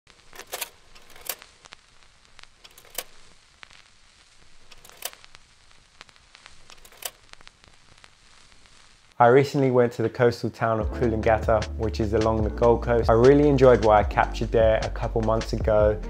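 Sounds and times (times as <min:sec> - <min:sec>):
crackle and pops: 0:00.1 - 0:10.2
low hiss: 0:00.1 - 0:16.0.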